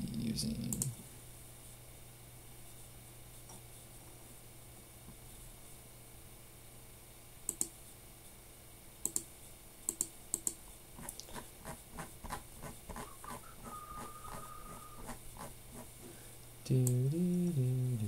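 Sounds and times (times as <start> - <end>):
mouse clicks: 7.5 - 7.8, 9.0 - 9.3, 9.9 - 10.6.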